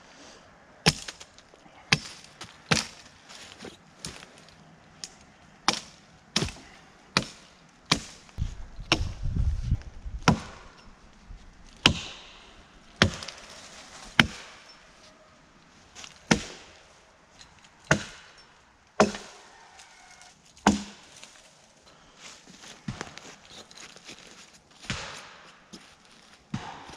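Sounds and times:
hatchet chopping wood: 0:00.8 - 0:01.2, 0:01.9 - 0:03.0, 0:05.6 - 0:06.6, 0:07.2 - 0:08.2, 0:08.9 - 0:09.1, 0:10.2 - 0:10.7, 0:11.8 - 0:12.4, 0:13.0 - 0:13.4, 0:14.2 - 0:14.6, 0:16.3 - 0:16.7, 0:17.9 - 0:18.3, 0:19.0 - 0:19.4, 0:20.6 - 0:21.0, 0:24.9 - 0:25.5, 0:26.5 - 0:26.9.

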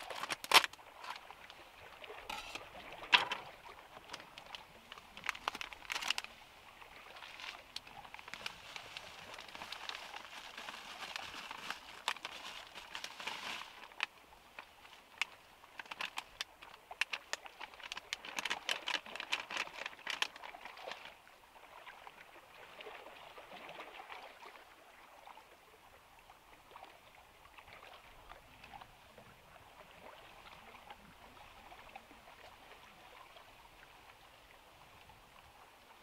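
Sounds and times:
faint water sound: 0:00.0 - 0:36.0
plastic bag crinkling: 0:05.2 - 0:06.3, 0:08.3 - 0:14.1, 0:17.8 - 0:20.4.

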